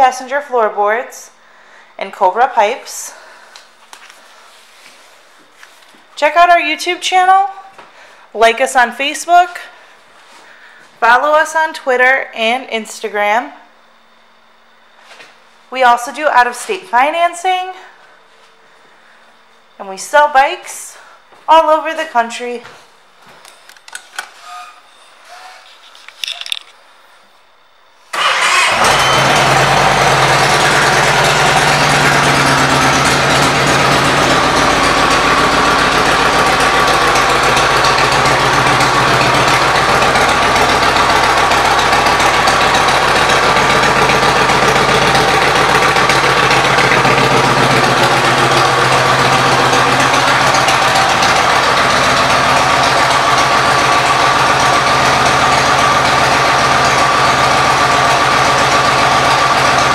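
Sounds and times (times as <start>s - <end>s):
motorcycle engine idling: 28.2s - 59.9s.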